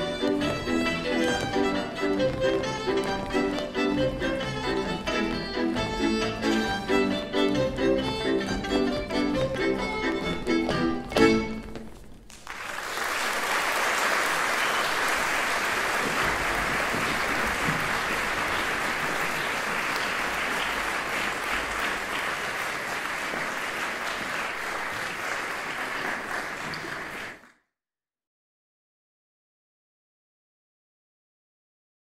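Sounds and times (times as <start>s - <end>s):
audience applauding: 12.3s - 27.5s.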